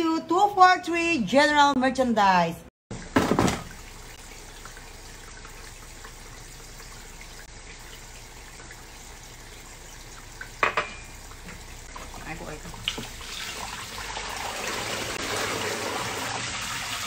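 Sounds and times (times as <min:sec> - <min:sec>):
ceramic mug knocking on countertop: 0:10.6 - 0:11.0.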